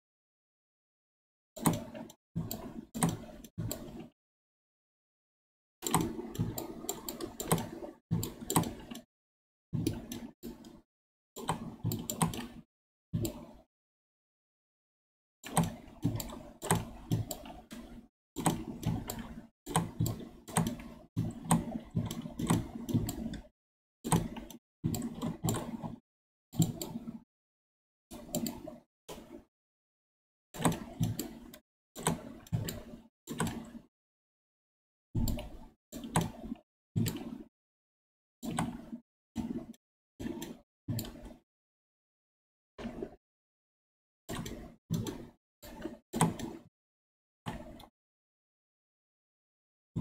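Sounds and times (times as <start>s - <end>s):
computer mouse clicking and scraping: 1.6s - 4.2s, 5.8s - 9.1s, 9.8s - 10.8s, 11.4s - 13.7s, 15.4s - 27.2s, 28.1s - 29.5s, 30.6s - 33.9s, 35.2s - 37.5s, 38.4s - 41.4s, 42.8s - 43.2s, 44.3s - 46.7s, 47.5s - 47.9s.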